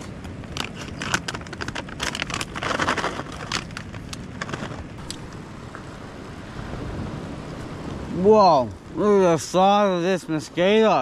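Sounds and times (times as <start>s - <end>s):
plastic snack packet crinkling: 0.6s - 4.8s.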